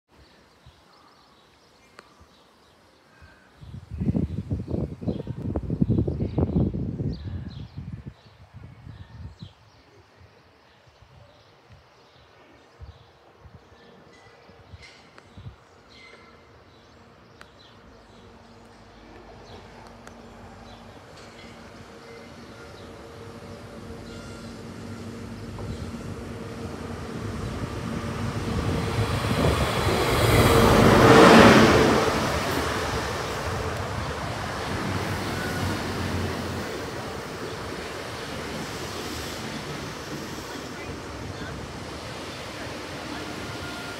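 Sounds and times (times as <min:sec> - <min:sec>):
wind rumble on microphone: 0:03.6 - 0:10.3, 0:25.4 - 0:31.0
train coaches rumbling past: 0:13.6 - 0:43.9
diesel train engine passing: 0:15.8 - 0:43.9.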